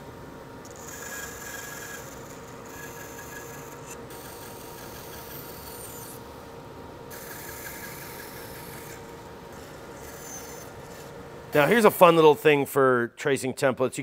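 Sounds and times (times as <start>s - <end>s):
bandsaw motor hum: 0.6s - 6.3s, 7.1s - 12.3s.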